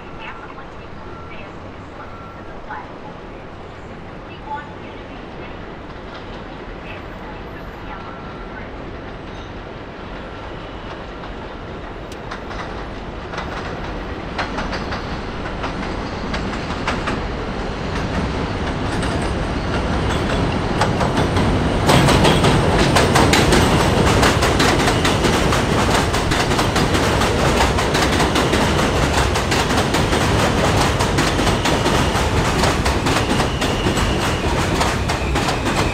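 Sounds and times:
train wheels clattering over rails: 0:10.2 - 0:35.9.

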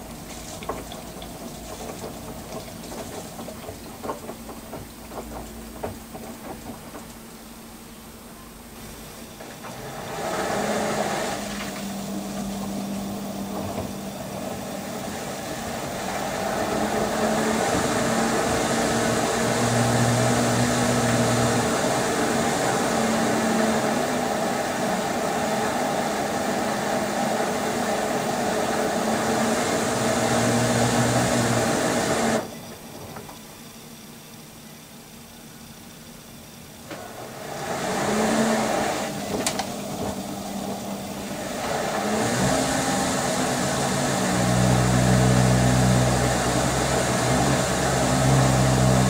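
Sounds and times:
washing machine motor hum: 0:00.0 - 0:49.0
water and duvet sloshing in drum: 0:00.1 - 0:07.3.

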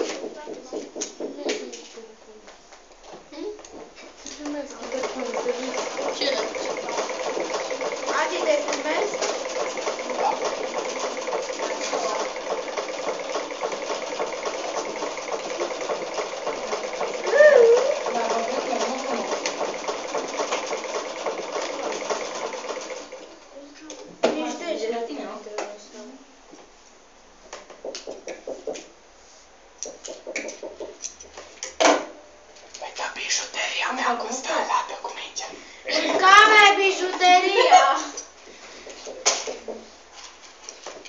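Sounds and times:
electric sewing machine stitching: 0:04.8 - 0:23.4.

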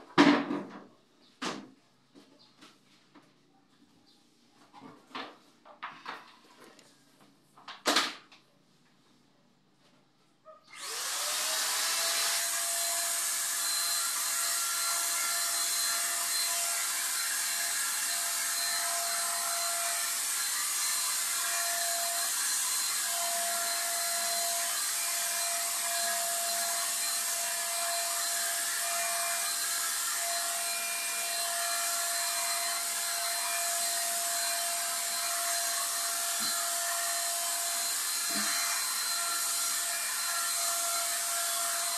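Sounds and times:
paint sprayer motor whine: 0:10.7 - 0:41.9.

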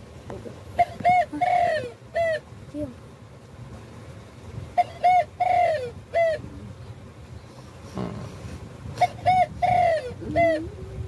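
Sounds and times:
dove cooing: 0:00.8 - 0:02.5, 0:04.8 - 0:06.8, 0:07.9 - 0:11.0.

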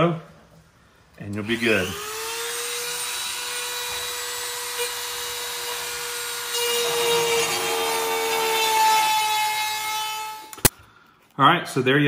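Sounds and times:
bit cutting foam: 0:01.4 - 0:10.7
rotary tool whining: 0:01.4 - 0:10.7.

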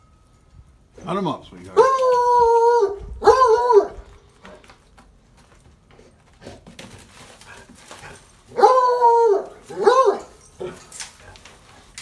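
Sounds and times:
hound baying: 0:01.8 - 0:04.6, 0:07.4 - 0:11.8.

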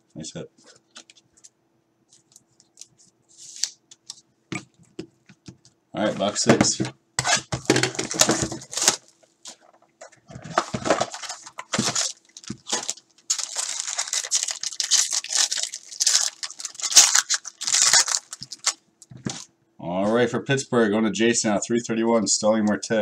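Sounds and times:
foil wrapper crinkling and tearing: 0:08.0 - 0:09.2, 0:10.6 - 0:18.8.

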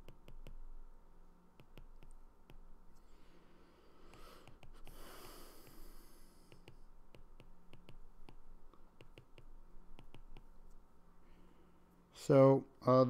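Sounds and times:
stylus tapping on glass screen: 0:01.6 - 0:02.7, 0:06.5 - 0:10.6
long breath: 0:03.1 - 0:06.5.

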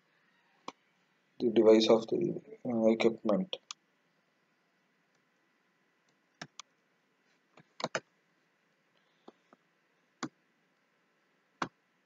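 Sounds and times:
faint steady hiss: 0:00.0 - 0:12.0
mouse and keyboard clicks: 0:06.4 - 0:06.7, 0:07.6 - 0:08.1.

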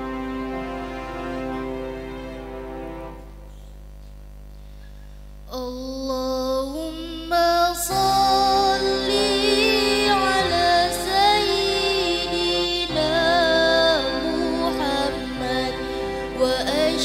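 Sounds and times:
woman singing through microphone: 0:05.5 - 0:17.0.

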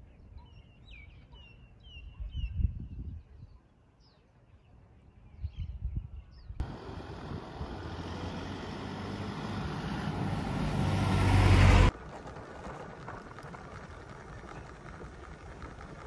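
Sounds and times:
vehicle engine hum and road noise: 0:06.6 - 0:16.0.

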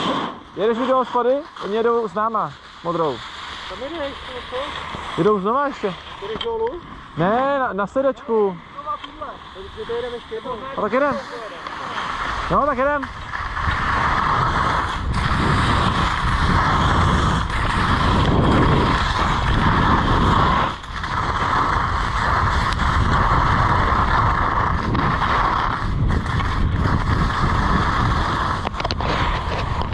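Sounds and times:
skis scraping on snow: 0:00.0 - 0:29.9
wind on microphone: 0:13.1 - 0:29.9.

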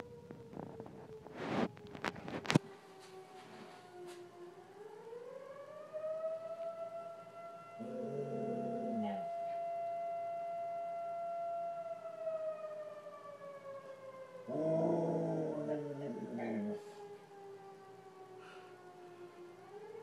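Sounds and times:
distant siren wailing: 0:00.0 - 0:20.0
dog howling: 0:07.8 - 0:09.3.

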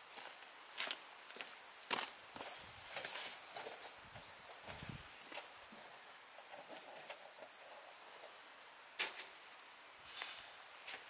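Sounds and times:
camp table clacking on gravel: 0:00.8 - 0:08.4
brief scrape: 0:10.1 - 0:10.6.

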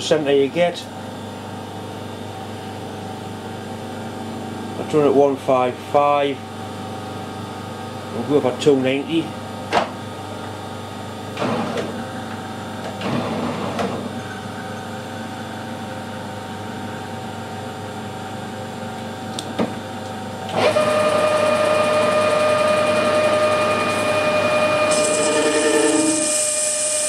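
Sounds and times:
metal lathe whining: 0:20.5 - 0:27.0.

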